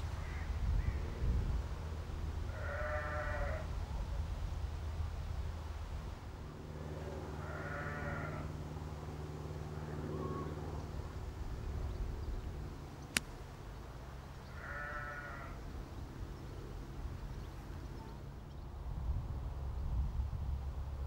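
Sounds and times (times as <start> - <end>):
sheep bleating: 2.5 - 3.6, 7.4 - 8.5, 14.5 - 15.6
golf club striking ball: 13.1 - 13.5.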